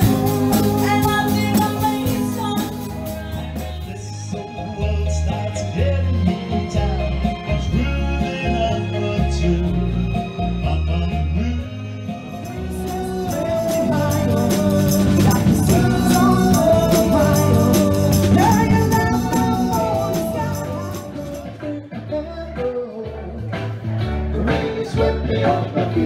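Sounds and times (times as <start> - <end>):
shaken percussion beat: 0.0 - 4.0, 12.3 - 21.6
lead singer: 0.0 - 26.0
live band music: 0.0 - 26.0.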